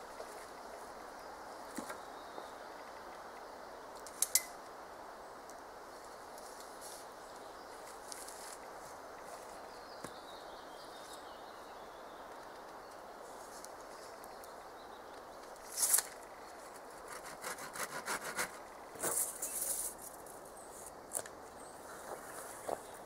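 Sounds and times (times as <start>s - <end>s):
faint steady hiss: 0.0s - 17.3s
rasping scrape on wood: 17.1s - 18.6s.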